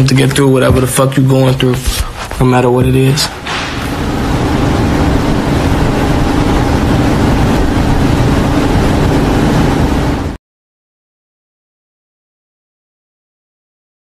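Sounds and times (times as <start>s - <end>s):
loud droning with low hum: 2.5s - 10.4s.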